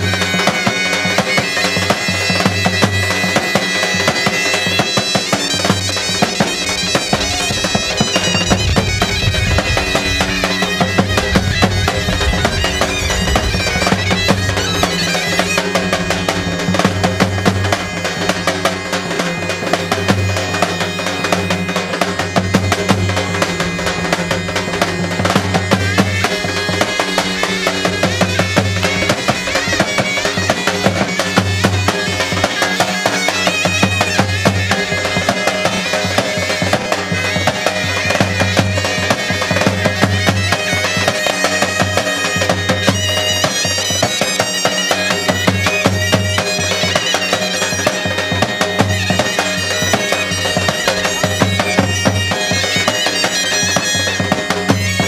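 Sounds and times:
large drum beating dance rhythm: 0.0s - 41.2s
shawms playing reedy melody: 0.0s - 55.0s.

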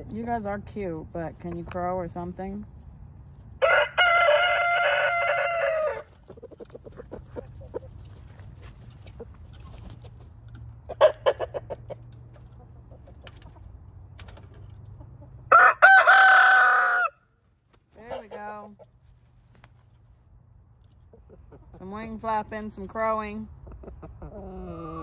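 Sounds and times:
rooster crowing: 3.6s - 6.1s, 15.5s - 17.2s
rooster clucking: 3.6s - 10.1s, 10.8s - 13.7s, 18.0s - 18.9s, 21.0s - 21.8s, 23.6s - 25.0s.

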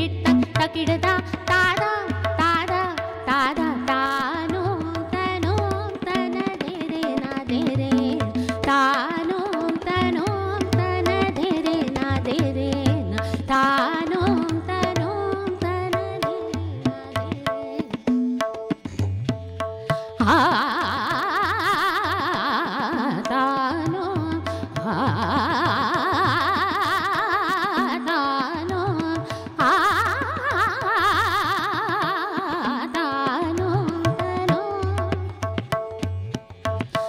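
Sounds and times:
woman singing classical vocals: 0.0s - 17.9s, 20.2s - 35.2s
tabla playing: 0.0s - 37.0s.

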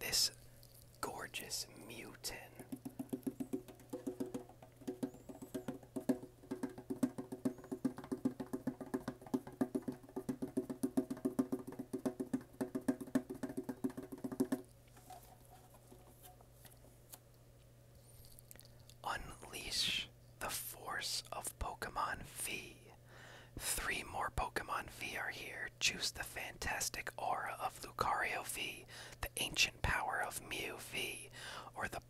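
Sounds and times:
fingertips tapping metal tin: 2.7s - 10.6s.

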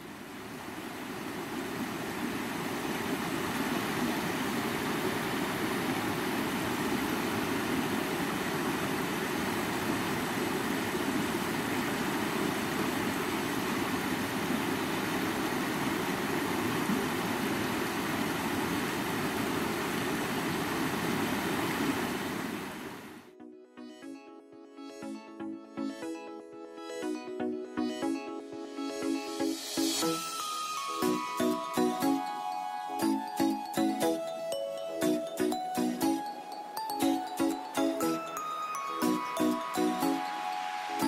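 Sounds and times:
rushing water: 0.0s - 23.2s, 35.1s - 41.0s.

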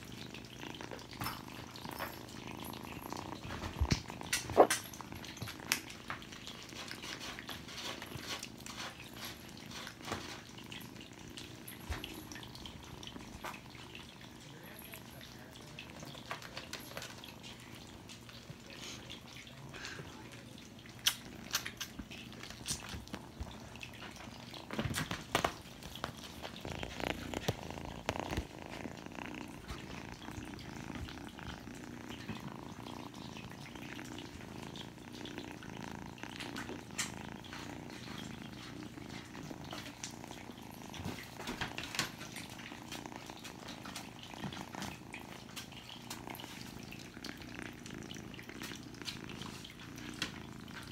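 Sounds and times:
kitten purring: 0.0s - 50.9s
clicks and rustles: 0.4s - 10.8s, 20.9s - 47.5s.

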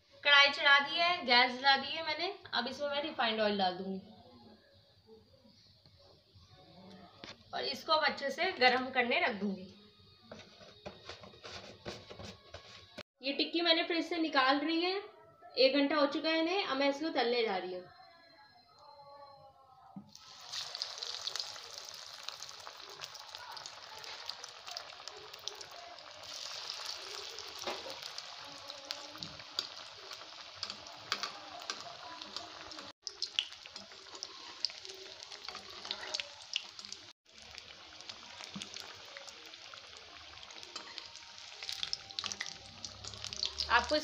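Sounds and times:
patties deep-frying in oil: 20.1s - 44.0s.

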